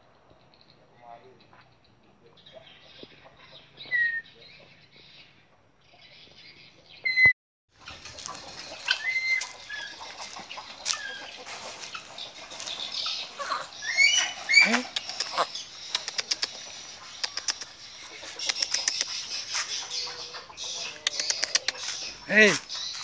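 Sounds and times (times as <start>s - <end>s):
bird chirps: 0.2s - 7.3s, 8.4s - 23.0s
rising whistled bird calls: 7.0s - 7.3s, 13.7s - 16.5s
sharp clicks: 14.7s - 16.6s, 17.2s - 17.8s, 18.4s - 19.2s, 21.0s - 21.8s.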